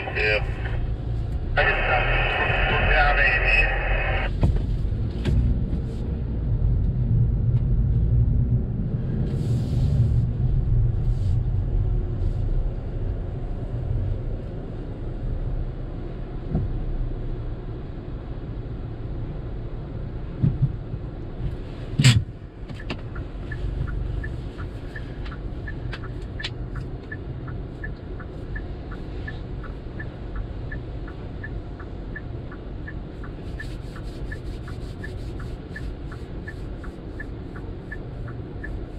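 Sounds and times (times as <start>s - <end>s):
steady light ticking: 22.8s - 38.9s.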